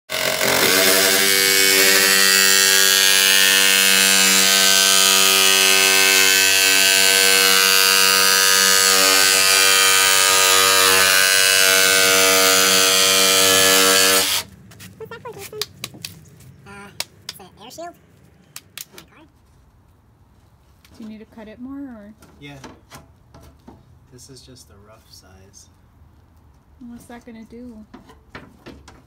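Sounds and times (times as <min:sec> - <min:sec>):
jigsaw cutting metal sheet: 0:00.1 - 0:14.5.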